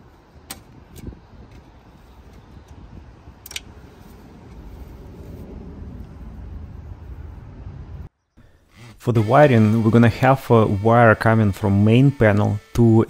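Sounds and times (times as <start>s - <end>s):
steady low rumble: 0.0s - 8.2s
metal on metal clicks: 3.4s - 3.7s.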